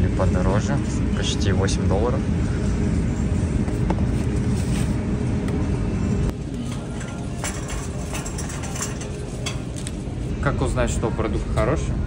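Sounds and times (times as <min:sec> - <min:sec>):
grocery store rumble: 0:00.0 - 0:11.2
shopping cart rattling: 0:06.5 - 0:10.1.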